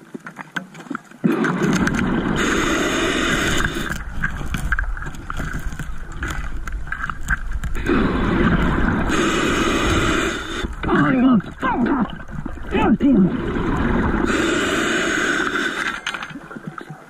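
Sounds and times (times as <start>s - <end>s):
rush of exhaled bubbles: 1.2s - 6.8s, 7.6s - 17.0s
diver breathing through regulator: 1.4s - 4.6s, 7.8s - 10.9s, 13.4s - 16.5s.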